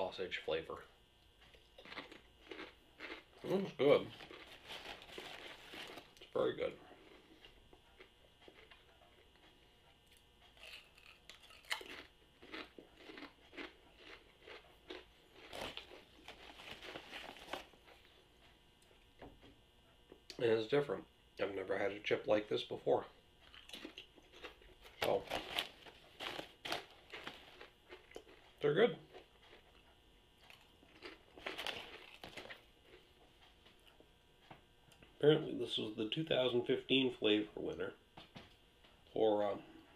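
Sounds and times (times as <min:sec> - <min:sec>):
chip crunching while chewed: 0:01.3 - 0:09.5, 0:10.1 - 0:18.1, 0:23.4 - 0:34.0.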